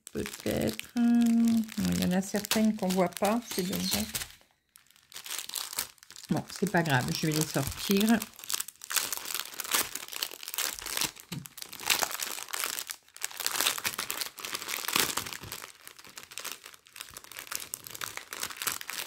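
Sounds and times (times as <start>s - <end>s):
plastic bags crinkling: 0.0s - 19.0s.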